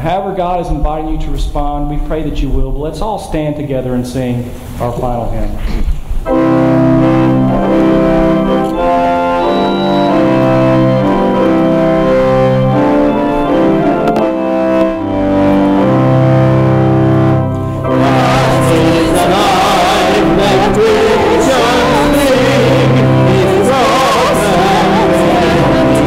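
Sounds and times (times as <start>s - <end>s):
church organ playing held chords: 6.2s - 26.0s.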